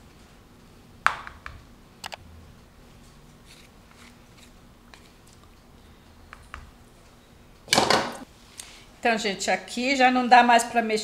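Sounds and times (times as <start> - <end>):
spoon scraping dough: 3.3 - 5.3.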